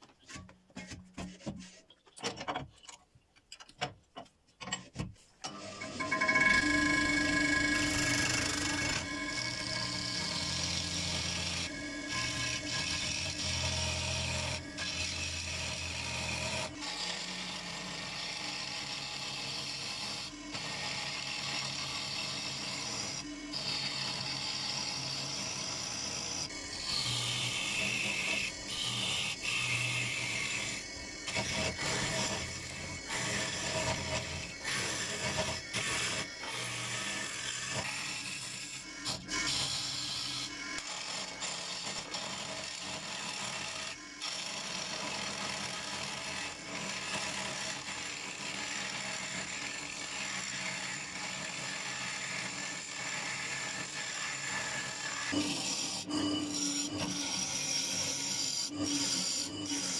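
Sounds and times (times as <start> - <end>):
wood lathe humming: 5.5 - 59.9.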